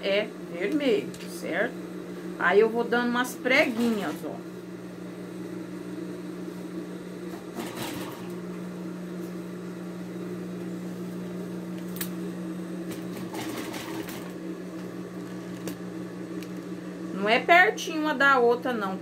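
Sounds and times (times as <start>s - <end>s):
electric sewing machine running: 7.3s - 8.5s, 12.9s - 14.9s.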